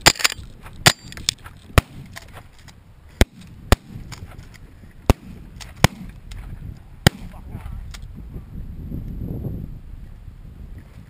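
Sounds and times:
shotgun shots: 0:05.1 - 0:06.2, 0:07.0 - 0:07.4.

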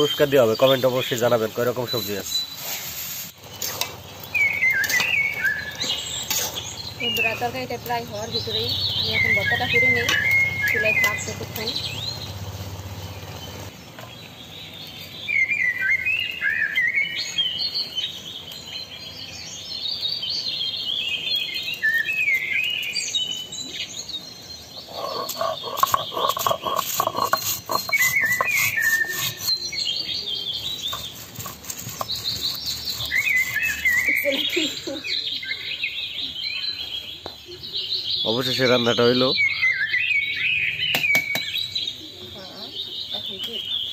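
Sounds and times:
small birds chirping: 0:00.0 - 0:43.9
stone grinding on stone: 0:24.8 - 0:29.7, 0:30.6 - 0:34.2.

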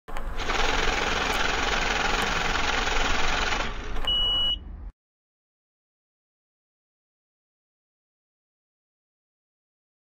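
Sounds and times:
mechanical rattling whir: 0:00.1 - 0:04.1
short high beep: 0:04.1 - 0:04.7.

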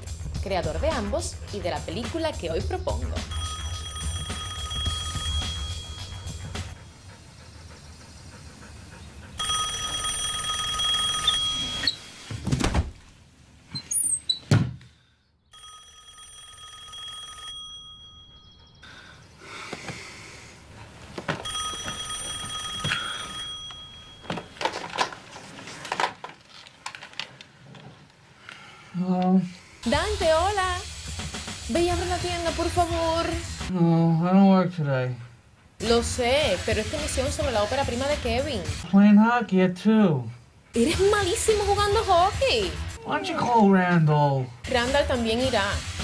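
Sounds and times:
telephone ringing: 0:03.2 - 0:06.6, 0:09.4 - 0:12.0, 0:15.5 - 0:18.5, 0:21.4 - 0:24.7.

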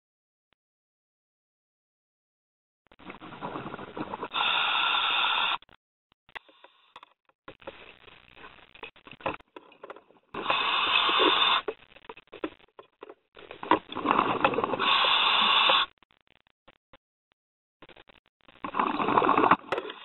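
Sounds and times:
underwater bubble exhalations: 0:03.0 - 0:05.6, 0:10.3 - 0:11.7, 0:13.4 - 0:15.9, 0:18.6 - 0:20.0
faint clicks and crackling: 0:05.5 - 0:14.8, 0:15.7 - 0:17.0, 0:17.8 - 0:20.0.

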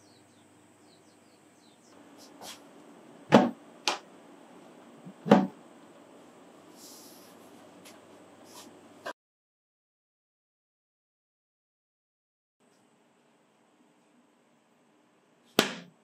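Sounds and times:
cabinet door knocking shut: 0:03.3 - 0:03.6, 0:05.2 - 0:05.5.

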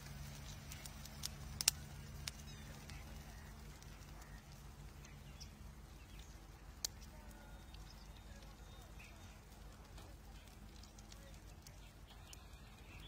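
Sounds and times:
electric arc snaps: 0:00.0 - 0:13.0
low electrical hum: 0:00.0 - 0:13.0.

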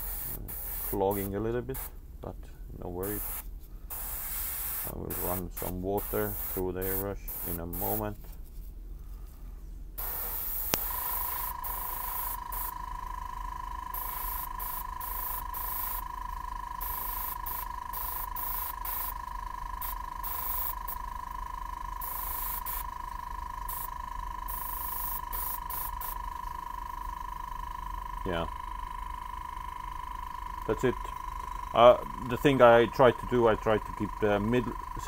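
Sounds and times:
airbrush air hissing: 0:00.0 - 0:02.0, 0:03.0 - 0:08.4, 0:10.0 - 0:35.0
steady high tone: 0:10.6 - 0:35.0.

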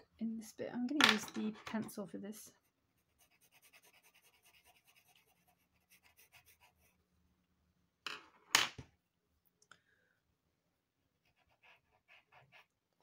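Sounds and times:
pencils clattering on table: 0:00.9 - 0:02.0
pencil scratching on paper: 0:02.6 - 0:07.0, 0:11.2 - 0:12.8.

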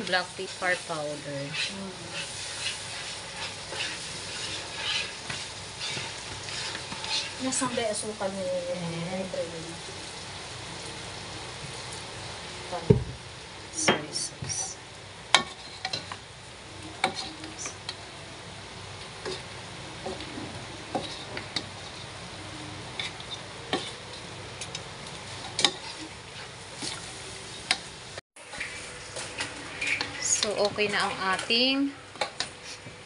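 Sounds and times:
food sizzling in a pan: 0:00.0 - 0:33.0
spatula scraping a pan: 0:00.1 - 0:08.8, 0:15.4 - 0:16.2, 0:17.0 - 0:17.7, 0:19.2 - 0:22.2, 0:22.9 - 0:24.1, 0:25.3 - 0:27.9, 0:28.5 - 0:31.5.

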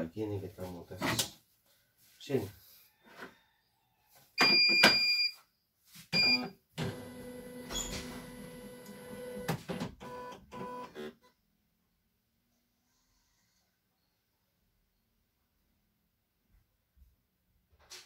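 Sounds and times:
machine beeps: 0:04.4 - 0:05.3, 0:06.2 - 0:06.5.

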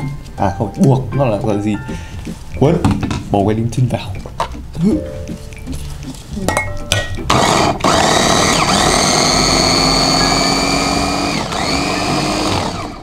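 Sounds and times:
food chopper motor running: 0:07.3 - 0:13.0.

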